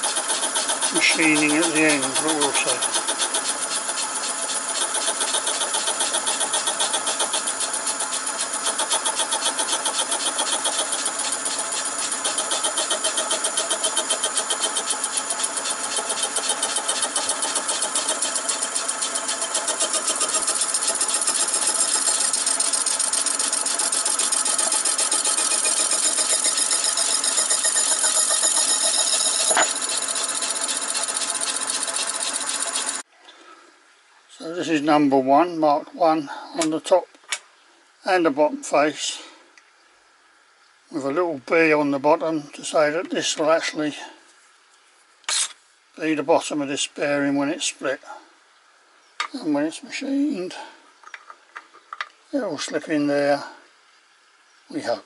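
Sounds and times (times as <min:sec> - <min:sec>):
saw whining through metal: 0:00.0 - 0:33.1
metal block clinking: 0:25.4 - 0:30.0.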